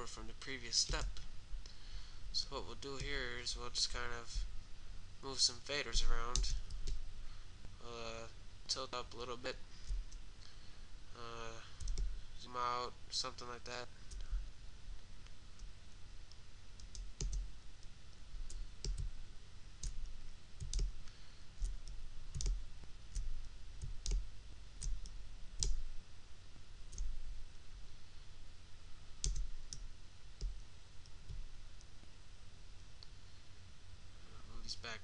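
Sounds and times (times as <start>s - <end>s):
computer mouse clicking: 11.8s - 12.1s, 16.3s - 17.9s, 18.5s - 19.1s, 19.8s - 21.0s, 21.6s - 25.8s, 26.9s - 27.2s, 29.2s - 31.4s.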